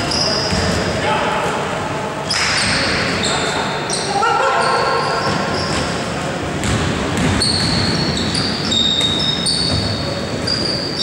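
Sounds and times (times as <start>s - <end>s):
sneakers squeaking: 0.0s - 1.0s, 2.2s - 11.0s
players and spectators noise: 0.0s - 11.0s
basketball bouncing on floor: 6.6s - 8.4s.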